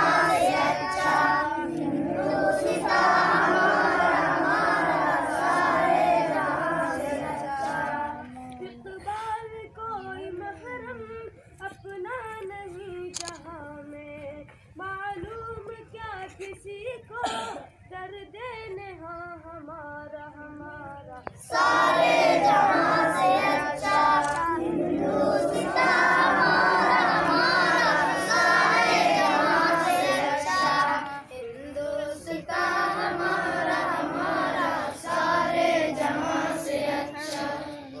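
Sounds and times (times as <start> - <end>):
children singing: 0.0 - 8.4, 21.4 - 38.0.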